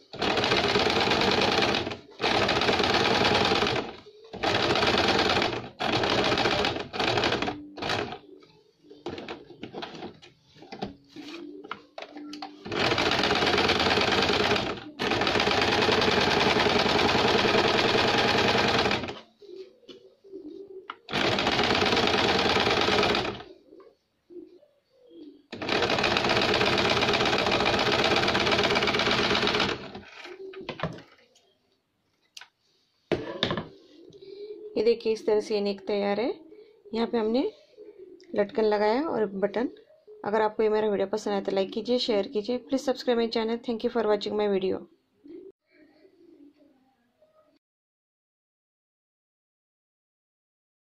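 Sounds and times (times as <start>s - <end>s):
sewing machine stitching: 0.1s - 8.2s, 12.6s - 19.2s, 21.1s - 23.5s, 25.5s - 30.2s.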